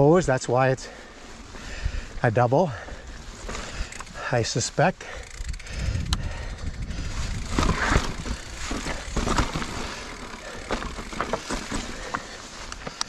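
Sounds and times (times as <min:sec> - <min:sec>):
bike clattering over bumps: 0:02.8 - 0:13.0
wind rumble on microphone: 0:05.4 - 0:09.6
tyres crunching over dirt and rock: 0:07.1 - 0:13.0.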